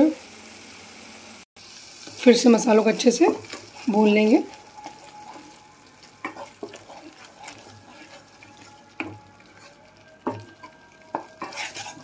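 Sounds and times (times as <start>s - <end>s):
faint sizzle: 0.0s - 12.0s
wooden spatula scraping a pan: 3.2s - 12.0s.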